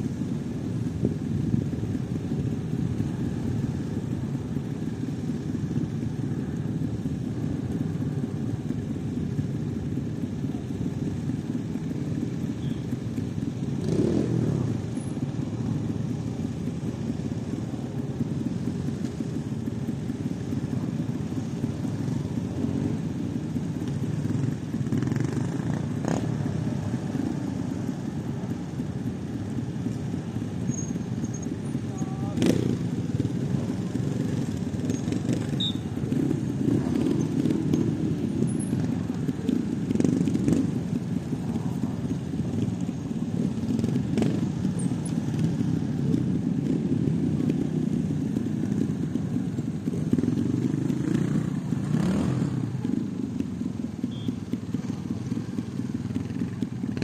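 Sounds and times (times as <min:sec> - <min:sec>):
motorcycle engine revving: 0:00.0 - 0:57.0
motorcycle engines idling: 0:00.0 - 0:57.0.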